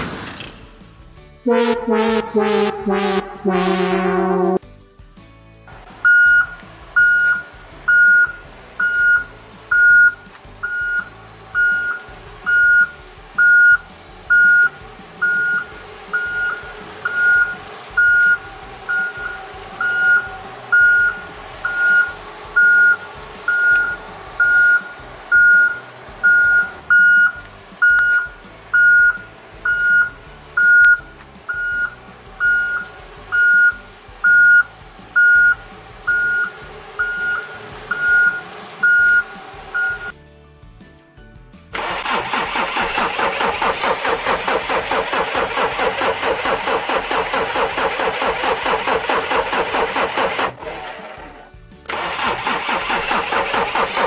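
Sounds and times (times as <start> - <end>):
reversing alarm beeping: 1.5 - 4.6, 6.1 - 40.1.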